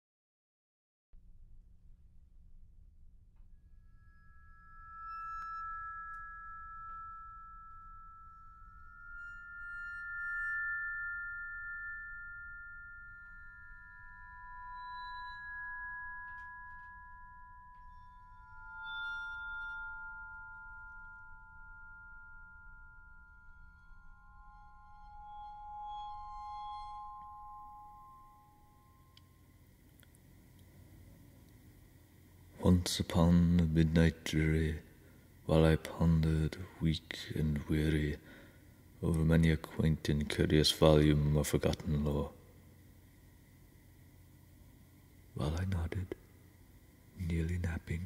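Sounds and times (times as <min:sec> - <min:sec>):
slow vibraphone music: 0:04.2 - 0:29.5.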